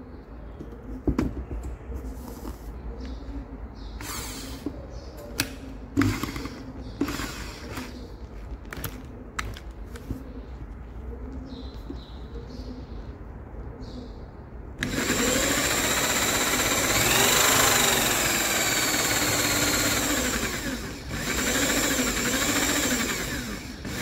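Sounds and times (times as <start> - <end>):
knocks and clicks of handled parts: 7.8 - 10.2.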